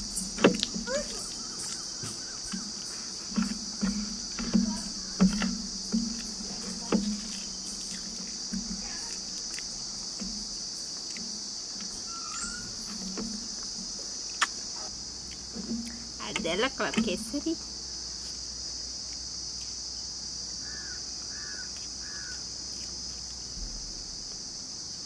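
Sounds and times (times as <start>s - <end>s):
insect chorus: 0.0s - 25.0s
eating by hand mouth noises: 2.5s - 10.2s, 14.3s - 16.0s.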